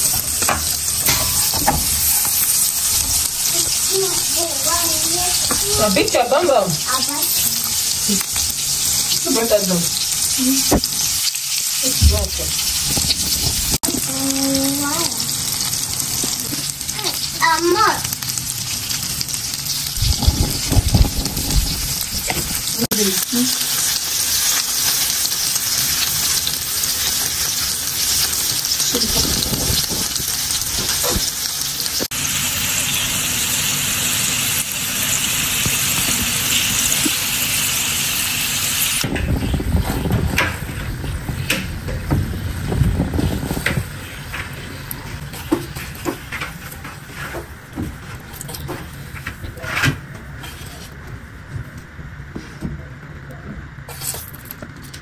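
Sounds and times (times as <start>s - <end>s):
spatula scraping and tapping pan: 0.0s - 3.3s
potato slices sizzling in oil: 0.0s - 49.8s.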